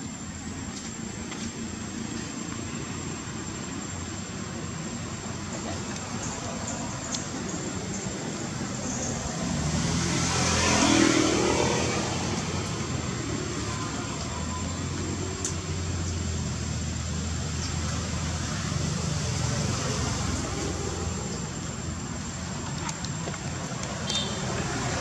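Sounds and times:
steady traffic noise: 0.0s - 25.0s
vehicle engine hum passing: 0.0s - 25.0s.

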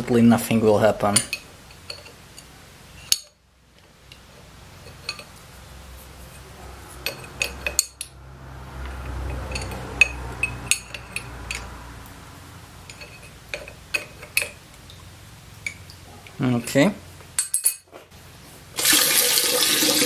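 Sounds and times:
metal tools clinking on fitting: 7.0s - 8.2s, 9.1s - 11.8s, 12.9s - 14.6s, 17.4s - 17.9s.

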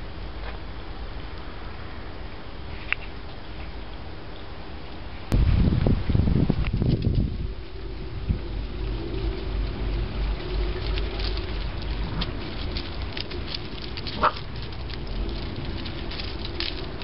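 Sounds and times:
paws pattering on gravel: 6.5s - 17.0s.

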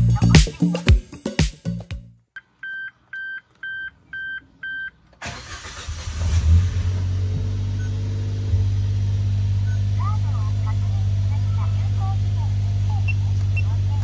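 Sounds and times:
car engine starting and idling: 5.0s - 14.0s.

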